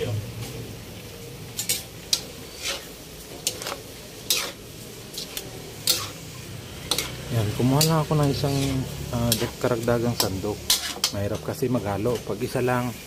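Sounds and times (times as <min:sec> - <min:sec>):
faint sizzle: 0:00.0 - 0:13.0
metal ladle scraping a wok: 0:01.6 - 0:11.5.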